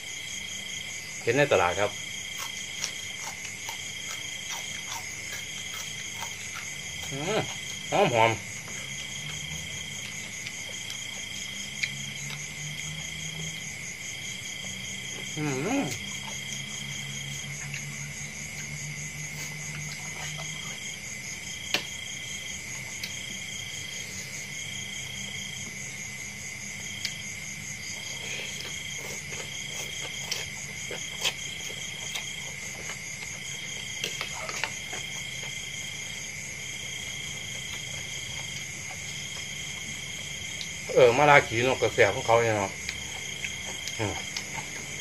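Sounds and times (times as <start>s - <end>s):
insects trilling: 0.0s - 45.0s
faint chewing: 2.0s - 7.9s, 8.5s - 12.9s, 14.5s - 21.0s, 26.9s - 41.0s, 42.1s - 45.0s.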